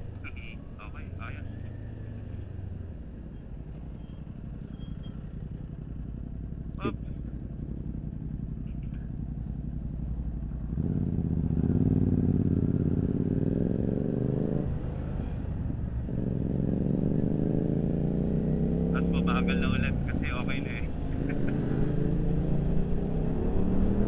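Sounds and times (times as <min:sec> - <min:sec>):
motorcycle engine revving: 0:07.4 - 0:24.0.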